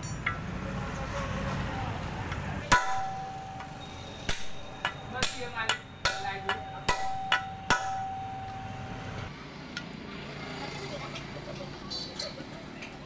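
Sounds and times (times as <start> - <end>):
metal taps and clinks: 0.0 - 0.5
ringing metal note: 2.7 - 9.1.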